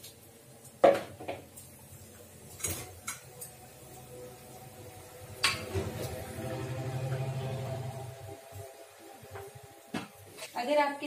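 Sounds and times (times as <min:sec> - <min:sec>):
utensils clanking against pots: 0:02.5 - 0:03.8, 0:05.3 - 0:08.0.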